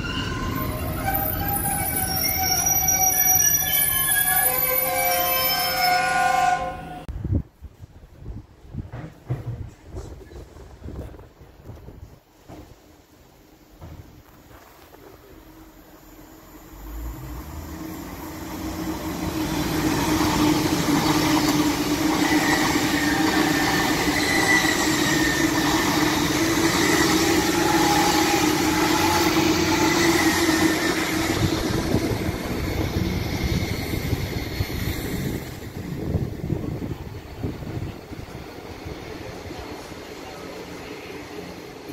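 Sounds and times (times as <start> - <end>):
train passing: 15.3 - 41.9.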